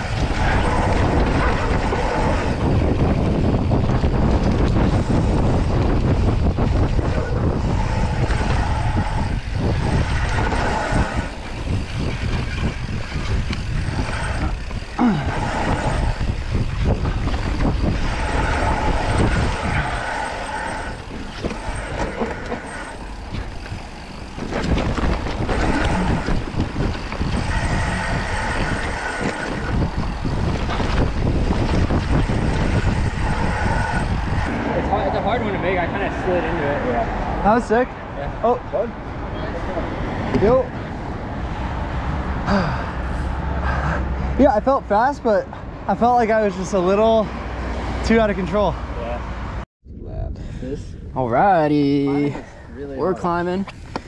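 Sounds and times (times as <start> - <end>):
buzzing rattle: 0.0 - 34.7
tyres rumbling over dirt: 0.0 - 36.2
wind rushing over microphone: 0.0 - 54.0.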